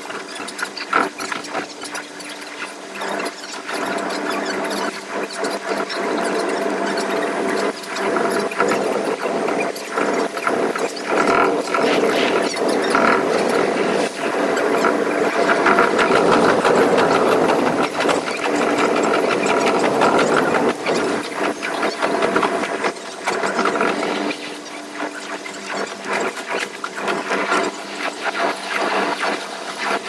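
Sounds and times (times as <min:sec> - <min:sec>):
train running hum: 0:02.9 - 0:25.1.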